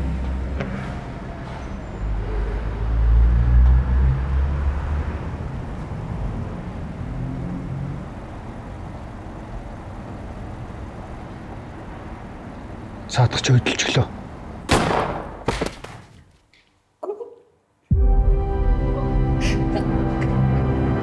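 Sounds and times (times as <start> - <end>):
car engine and tyre rumble: 0.0 - 14.7.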